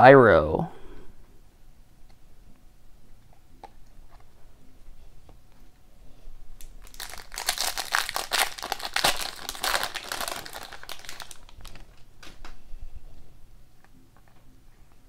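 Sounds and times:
foil wrapper tearing and crinkling: 0:06.6 - 0:12.3.

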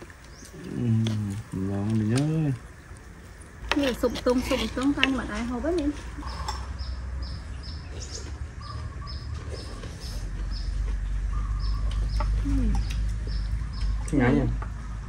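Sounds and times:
small bird chirping: 0:00.2 - 0:01.5, 0:06.2 - 0:15.0.

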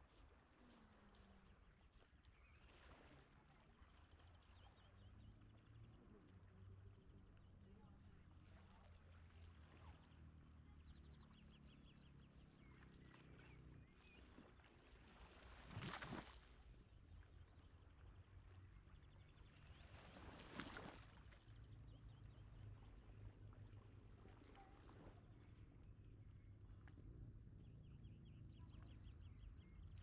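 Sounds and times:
small waves washing in: 0:14.0 - 0:16.8, 0:19.5 - 0:21.4
low steady rumble: 0:16.4 - 0:30.0.

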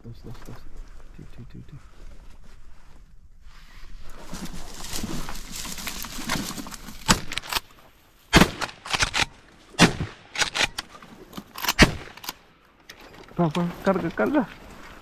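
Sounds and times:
shotgun shots: 0:08.3 - 0:10.8, 0:11.6 - 0:12.4.

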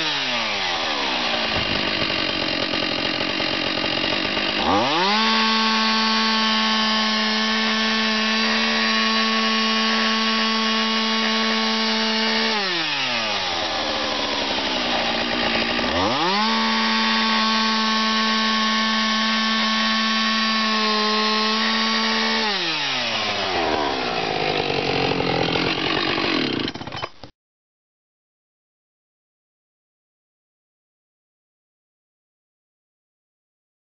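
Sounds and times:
chainsaw cutting into wood: 0:00.0 - 0:27.3.

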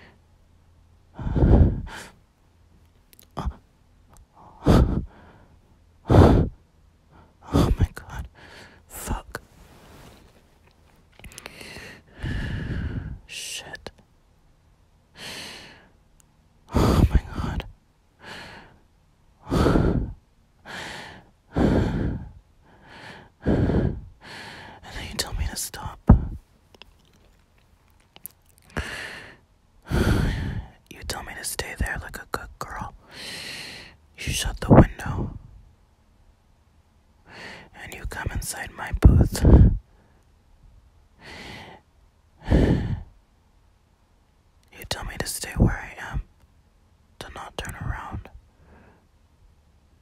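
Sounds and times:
woman breathing heavily: 0:01.1 - 0:02.2, 0:04.3 - 0:13.4, 0:15.1 - 0:16.0, 0:16.7 - 0:30.8, 0:33.0 - 0:34.0, 0:37.2 - 0:37.8, 0:39.1 - 0:40.2, 0:41.2 - 0:43.2.

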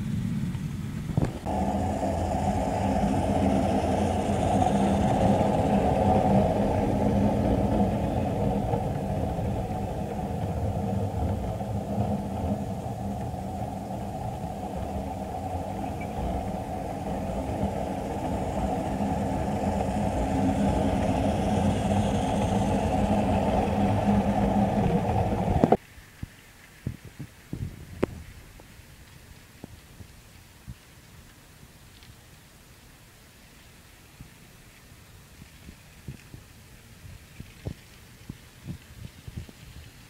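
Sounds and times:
model train rumbling on track: 0:00.0 - 0:25.8.

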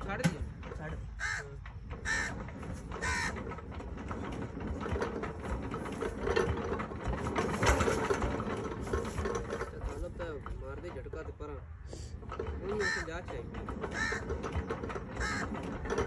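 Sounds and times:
flywheel engine chugging: 0:00.0 - 0:16.0
crow cawing: 0:01.2 - 0:02.4, 0:03.0 - 0:03.4, 0:12.8 - 0:13.1, 0:14.0 - 0:14.4, 0:15.2 - 0:15.5.

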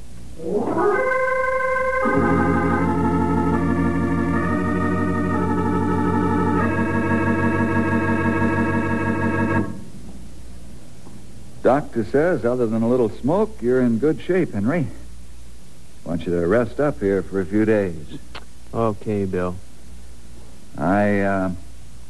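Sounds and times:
organ chords: 0:00.0 - 0:10.1.

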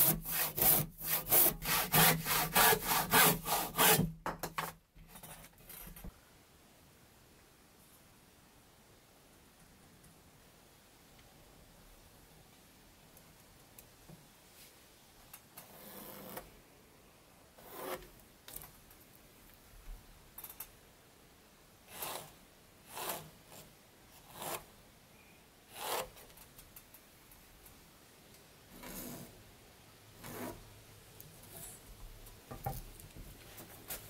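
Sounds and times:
pencil scratching on wood: 0:00.0 - 0:04.0.

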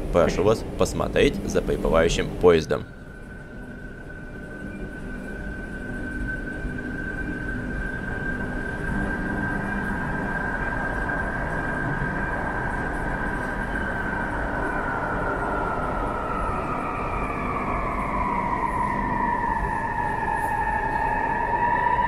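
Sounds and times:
metro train electric whine: 0:00.0 - 0:22.0
train braking rumble: 0:00.0 - 0:22.0.

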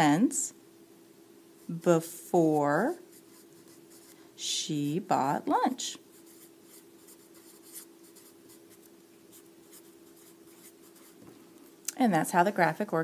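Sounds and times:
faint steady hum: 0:00.0 - 0:13.0
marker scratching on paper: 0:01.7 - 0:04.2, 0:06.1 - 0:11.2.

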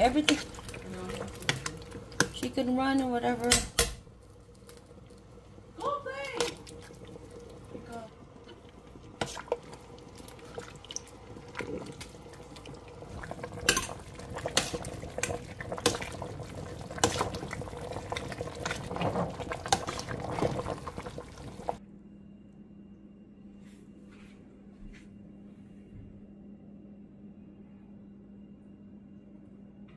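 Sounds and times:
liquid sloshing in pot: 0:00.0 - 0:21.8.

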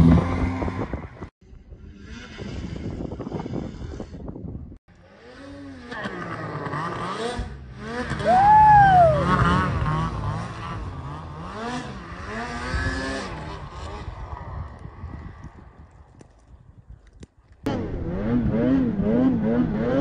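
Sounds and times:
snowmobile engine revving: 0:05.0 - 0:14.5, 0:17.7 - 0:20.0.

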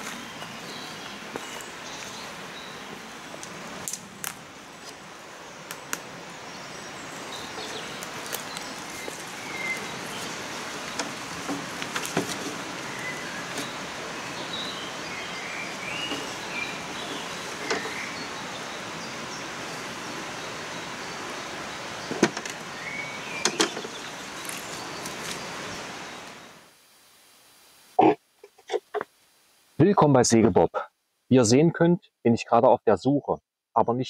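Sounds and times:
footsteps on stony mud: 0:00.0 - 0:02.2, 0:07.6 - 0:10.4
birds chirping: 0:00.0 - 0:26.6
outdoor background noise: 0:00.0 - 0:34.0
twigs snapping underfoot: 0:03.4 - 0:05.0, 0:05.7 - 0:06.1, 0:07.9 - 0:09.9.

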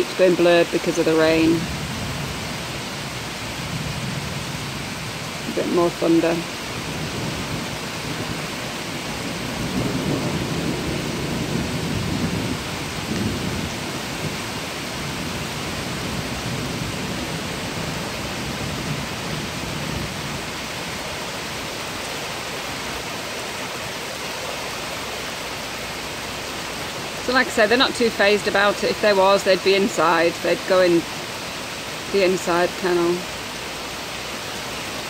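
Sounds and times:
steady rain falling: 0:00.0 - 0:35.0
low rumble of thunder: 0:01.5 - 0:05.5, 0:06.4 - 0:22.4.

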